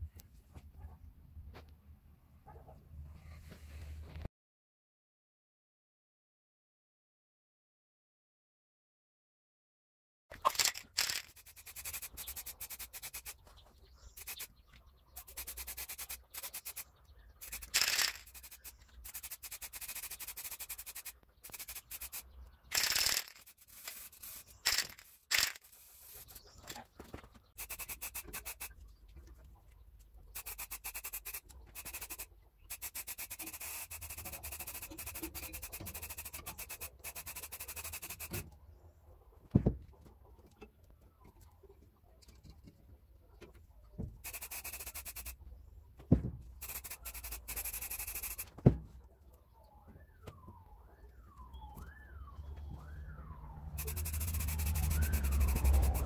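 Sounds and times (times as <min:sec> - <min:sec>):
aerosol spray can hissing: 0:10.6 - 0:13.4, 0:14.2 - 0:14.5, 0:15.2 - 0:16.8, 0:17.4 - 0:22.2, 0:22.8 - 0:26.4, 0:27.6 - 0:28.7, 0:30.4 - 0:38.4, 0:44.2 - 0:45.4, 0:46.6 - 0:48.5, 0:53.8 - 0:56.0.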